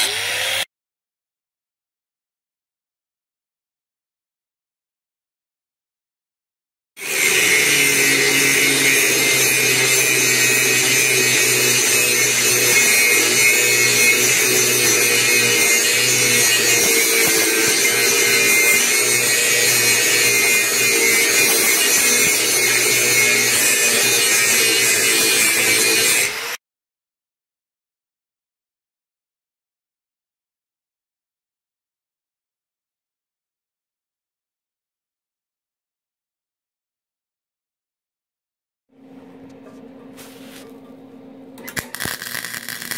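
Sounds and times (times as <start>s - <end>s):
angle grinder grinding steel: 0.0s - 0.7s, 7.0s - 26.6s, 41.6s - 42.9s.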